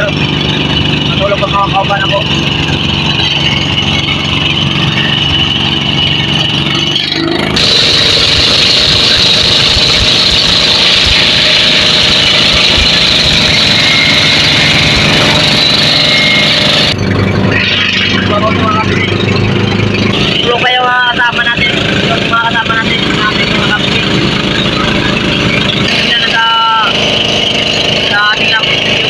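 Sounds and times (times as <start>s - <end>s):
boat engine running: 0.0s - 29.0s.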